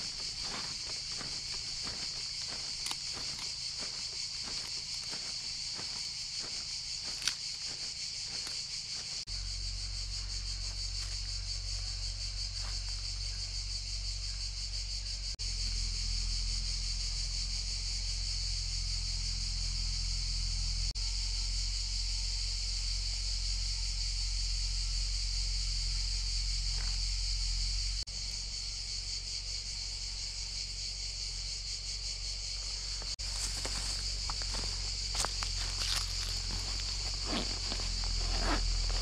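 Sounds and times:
insects chirring: 0:00.0 - 0:39.0
low steady rumble: 0:32.8 - 0:39.0.

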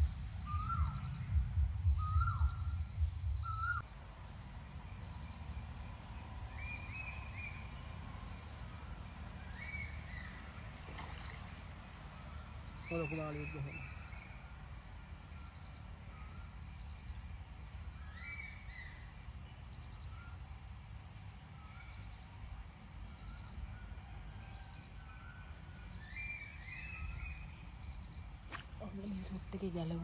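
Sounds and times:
birds calling: 0:00.0 - 0:03.8
steady low rumble: 0:00.0 - 0:03.8.

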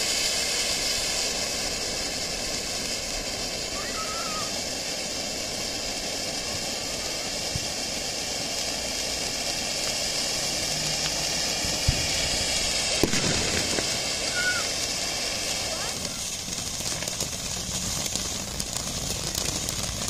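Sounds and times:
firework fountain hissing sparks: 0:00.0 - 0:20.0
sharp pops: 0:10.3 - 0:20.0.

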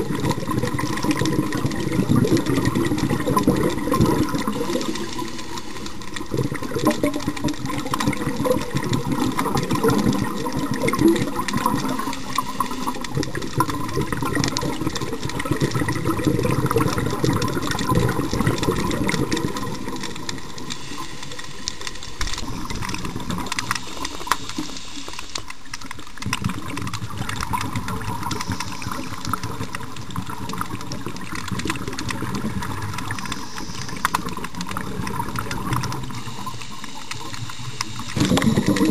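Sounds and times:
bubbling water rushing: 0:00.0 - 0:38.9
lobsters clicking underwater: 0:00.0 - 0:38.9.

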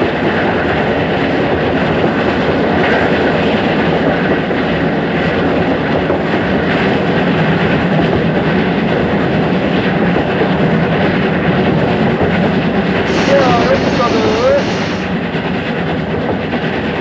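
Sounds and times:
steam locomotive running: 0:00.0 - 0:17.0.

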